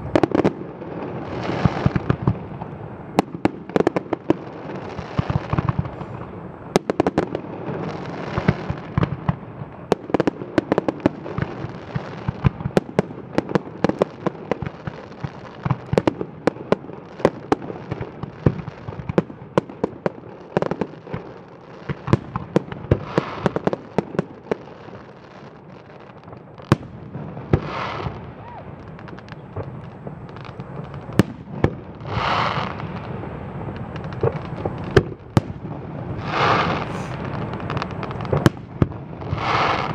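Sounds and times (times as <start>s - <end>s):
fireworks bangs and crackles: 0.0s - 39.9s
fireworks hissing bursts: 4.4s - 6.7s, 27.4s - 39.9s.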